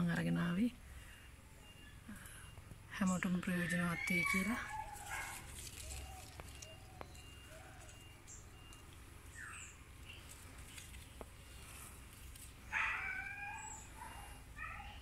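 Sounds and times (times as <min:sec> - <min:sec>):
small birds chirping: 0:00.0 - 0:15.0
chicken calling: 0:03.6 - 0:08.8.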